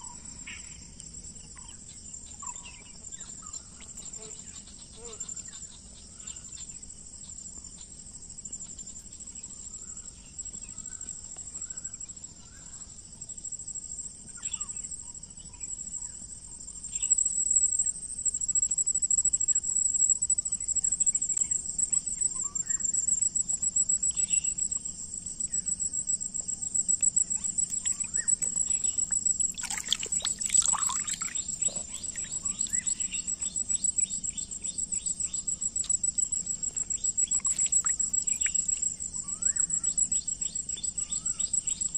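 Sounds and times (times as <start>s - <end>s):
insects trilling: 0.0s - 41.9s
bird chirps: 26.6s - 35.6s, 37.0s - 40.0s.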